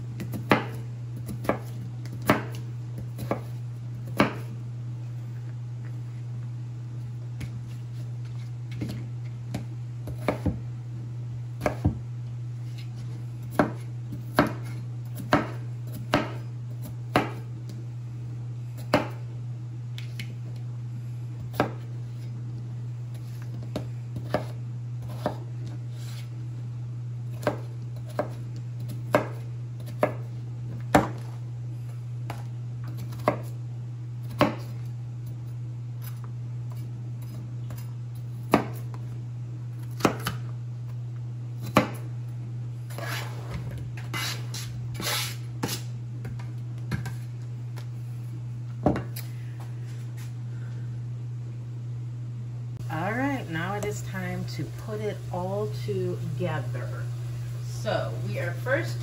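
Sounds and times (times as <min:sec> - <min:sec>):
steady low hum: 0:00.0 - 0:59.0
knife chopping on plastic board: 0:00.2 - 0:03.5, 0:04.1 - 0:04.5, 0:08.8 - 0:10.6, 0:11.6 - 0:12.0, 0:13.5 - 0:17.4, 0:18.8 - 0:19.2, 0:23.5 - 0:25.4, 0:27.4 - 0:31.3, 0:32.3 - 0:33.5, 0:34.2 - 0:34.7, 0:38.4 - 0:38.9, 0:39.8 - 0:40.4, 0:41.6 - 0:42.0.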